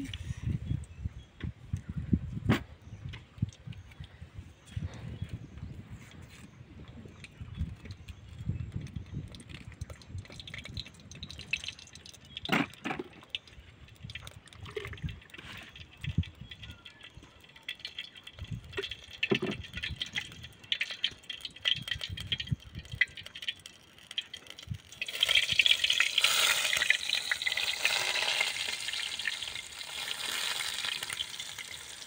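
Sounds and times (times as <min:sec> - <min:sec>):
water pouring from jug: 0:06.8 - 0:32.0.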